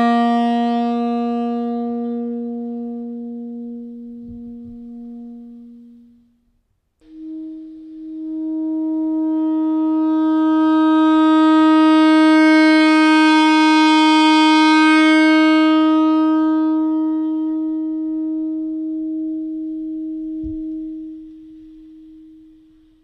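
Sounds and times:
saxophone long note: 0.0s - 6.4s, 7.0s - 22.8s.

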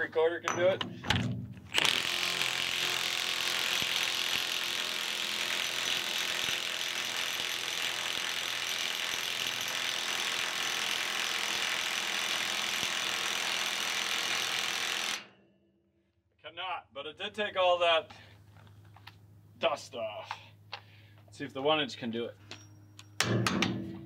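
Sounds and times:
impact wrench hammering: 23.0s - 24.0s.

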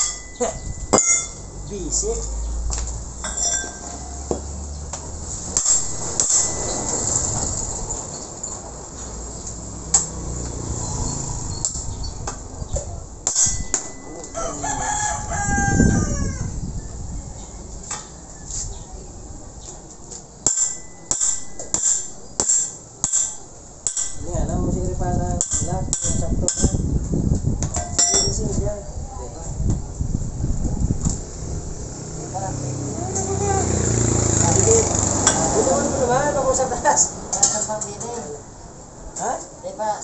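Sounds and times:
metal knocks and clinks: 0.0s - 1.7s, 3.2s - 4.5s, 5.5s - 8.7s, 13.2s - 14.4s, 20.4s - 24.3s, 27.7s - 28.5s
rooster crowing: 14.0s - 16.6s.

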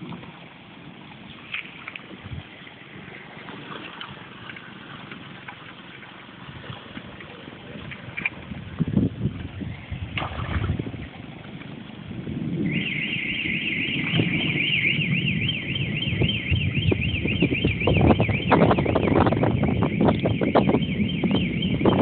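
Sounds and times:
low rumble: 6.4s - 22.0s
electronic alarm siren warbling: 12.5s - 22.0s.

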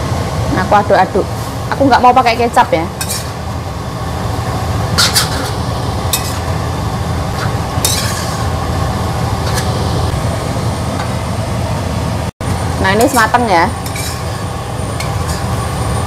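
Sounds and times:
metal spatula scraping wok: 3.0s - 3.5s, 4.9s - 6.6s, 7.3s - 8.6s, 9.4s - 10.0s, 12.9s - 15.9s.

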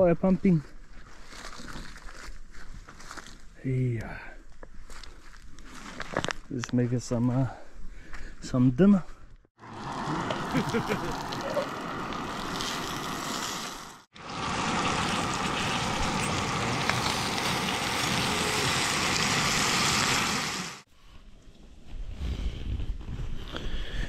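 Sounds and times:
camp stove hissing: 9.6s - 20.9s
food sizzling: 9.6s - 20.9s.

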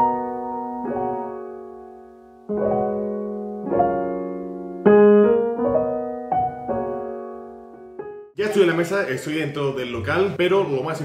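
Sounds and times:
slow gentle piano music: 0.0s - 8.4s.

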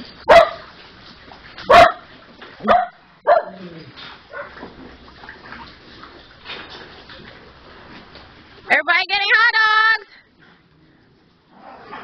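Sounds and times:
small dogs barking: 0.3s - 0.7s, 1.7s - 3.6s, 4.3s - 4.6s.

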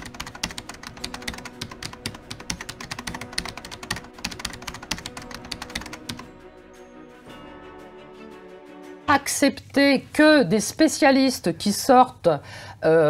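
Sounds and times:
keyboard typing clicks: 0.0s - 6.3s
background music: 0.0s - 11.4s.

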